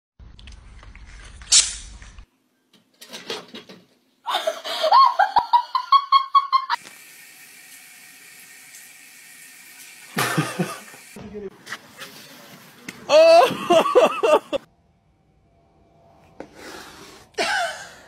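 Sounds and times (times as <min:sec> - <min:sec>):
person laughing: 0:04.3 - 0:06.8, 0:10.2 - 0:10.9, 0:13.1 - 0:14.7, 0:17.4 - 0:18.0
water running from a tap: 0:06.8 - 0:11.2.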